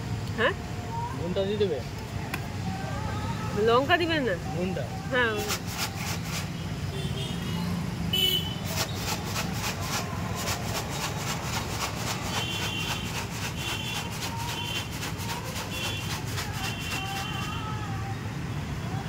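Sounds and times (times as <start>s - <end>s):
low hum of street traffic: 0.0s - 19.0s
puffed rice rattling in a container: 5.4s - 6.5s, 8.7s - 17.6s.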